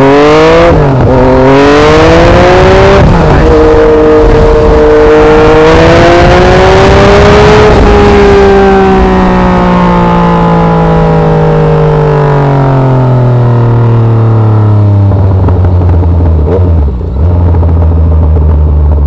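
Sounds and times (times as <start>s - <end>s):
wind rushing over microphone: 0.0s - 9.9s, 14.2s - 19.0s
motorcycle engine revving and slowing: 0.0s - 19.0s.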